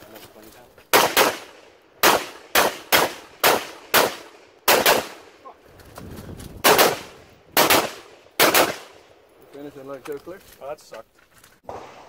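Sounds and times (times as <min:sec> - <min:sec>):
rapid rifle shots: 0:00.9 - 0:05.2, 0:06.6 - 0:09.0.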